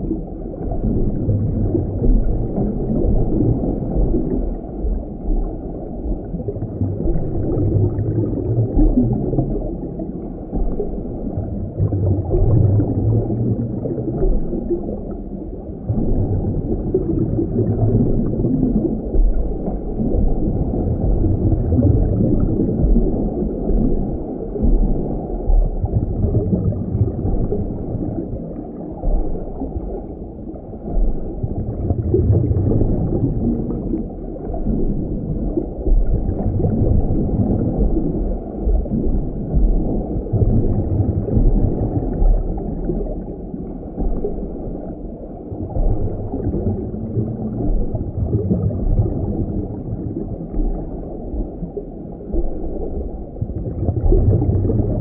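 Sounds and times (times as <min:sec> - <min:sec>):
muffled underwater rumbling wash: 0:00.0 - 0:55.0.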